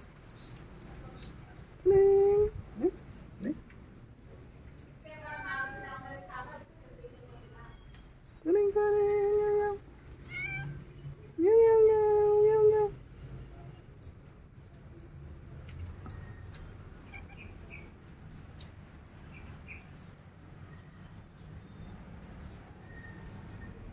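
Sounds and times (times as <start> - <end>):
cat meowing: 10.2 - 10.8, 17.0 - 17.6.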